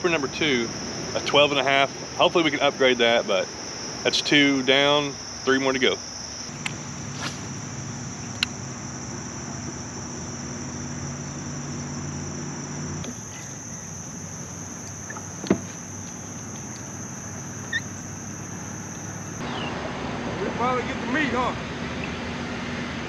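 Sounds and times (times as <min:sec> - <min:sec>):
high-pitched insect drone: 0:00.1 - 0:19.4
low steady hum: 0:06.3 - 0:19.4.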